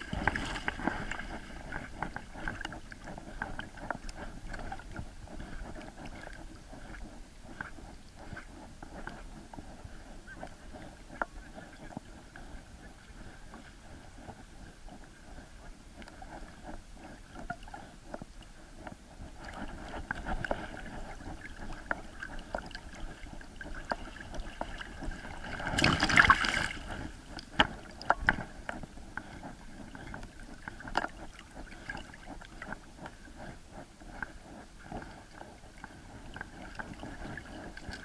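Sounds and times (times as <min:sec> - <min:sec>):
water sloshing and splashing: 0:00.0 - 0:07.6, 0:19.3 - 0:32.8, 0:35.0 - 0:38.0.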